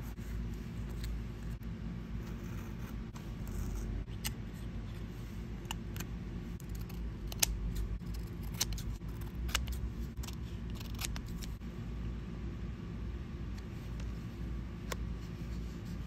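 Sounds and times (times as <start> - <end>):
steady low hum: 0.0 - 16.0
scissors snipping paper: 5.6 - 11.6.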